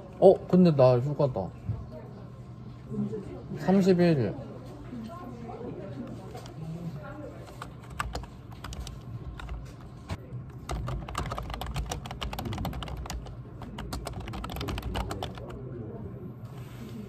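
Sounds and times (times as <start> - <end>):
fast typing on a keyboard: 7.5 - 9.6, 10.5 - 15.6.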